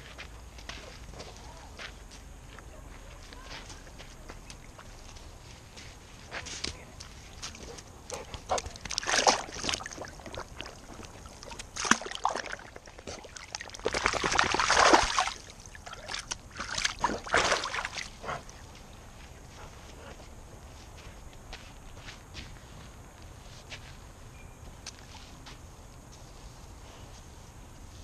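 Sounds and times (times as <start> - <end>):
faint lapping water: 7.0 - 18.7
dog splashing through water: 7.3 - 18.6.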